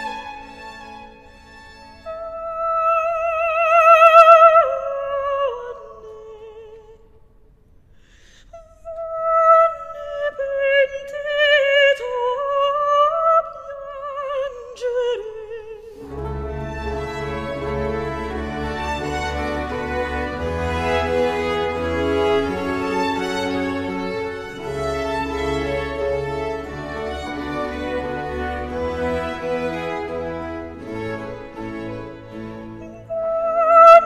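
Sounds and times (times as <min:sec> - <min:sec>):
opera-like solo melody: 0:16.0 - 0:34.0.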